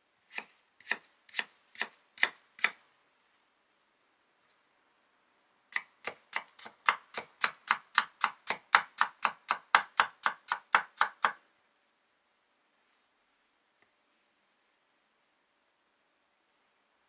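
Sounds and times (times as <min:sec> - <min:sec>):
knife chopping on wooden board: 0:05.8 - 0:11.4.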